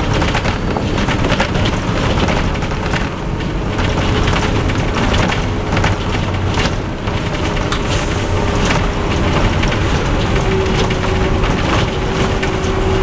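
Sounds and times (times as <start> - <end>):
bodywork rattling and clicking: 0.0 - 13.0
bus diesel engine humming: 0.0 - 13.0
road noise: 0.0 - 13.0.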